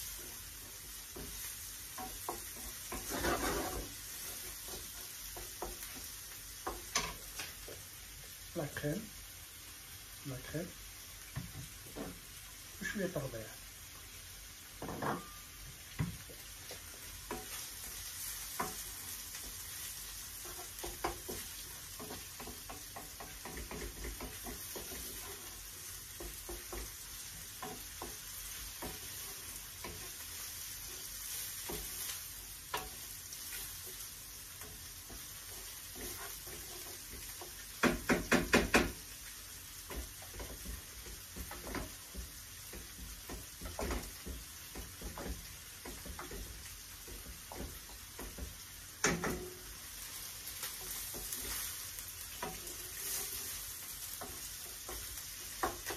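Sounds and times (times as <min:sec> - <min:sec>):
spatula scraping a pan: 0:00.0 - 0:07.5, 0:16.7 - 0:55.9
fish sizzling in a frying pan: 0:00.0 - 0:55.9.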